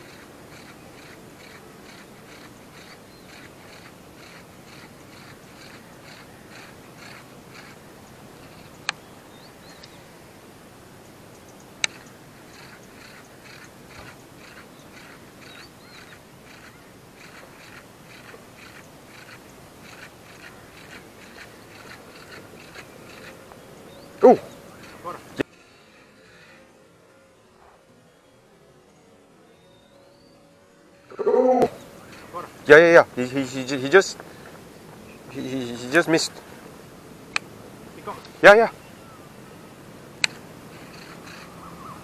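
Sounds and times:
fishing reel ticking: 0:00.0 - 0:07.8, 0:11.8 - 0:23.4
sharp clicks: 0:11.4 - 0:23.4, 0:37.3 - 0:37.5, 0:40.2 - 0:41.5.

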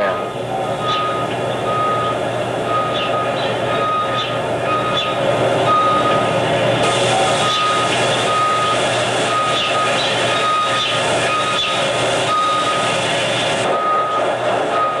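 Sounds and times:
high electronic beep: 0:00.6 - 0:06.3, 0:07.4 - 0:12.9
loud steady hiss: 0:04.4 - 0:14.7.

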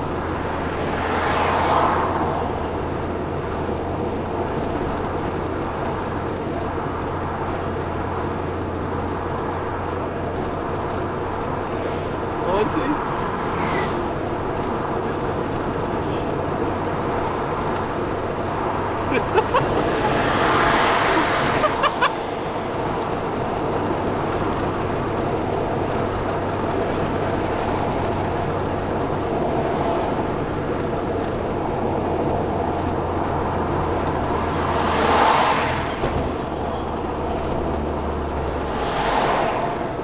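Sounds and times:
tyre and road rumble: 0:00.0 - 0:40.0
low engine drone: 0:02.2 - 0:40.0
rushing noise: 0:13.0 - 0:15.0.

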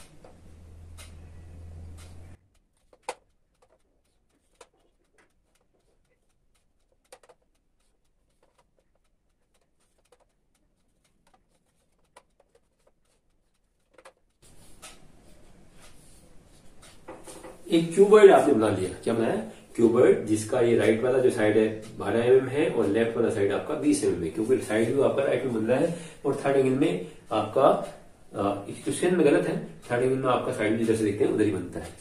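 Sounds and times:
marker tapping on whiteboard: 0:02.8 - 0:15.0, 0:15.9 - 0:17.7.

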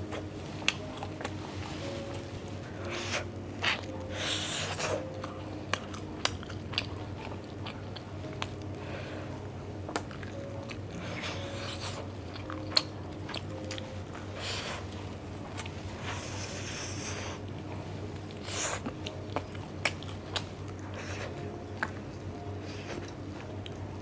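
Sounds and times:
chewing and biting: 0:03.6 - 0:08.8, 0:09.9 - 0:14.6, 0:18.2 - 0:23.9.

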